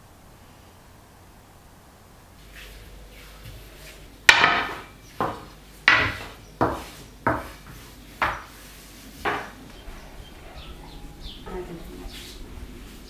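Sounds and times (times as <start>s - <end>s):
rolling pin on glass table: 2.5s - 9.6s.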